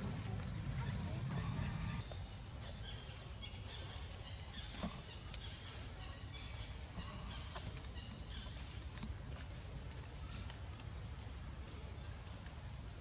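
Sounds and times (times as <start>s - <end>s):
animal calls and chirps: 0.0s - 8.8s
outdoor background noise: 0.0s - 13.0s.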